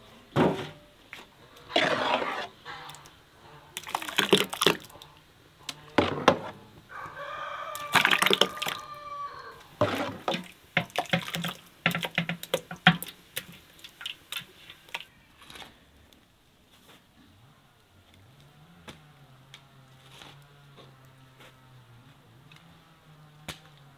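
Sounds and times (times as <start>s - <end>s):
ladle scraping metal pot: 1.6s - 3.1s, 9.8s - 13.1s
liquid splashing and dripping: 3.8s - 5.0s, 7.8s - 8.8s, 9.8s - 15.1s
rooster crowing: 6.9s - 9.7s.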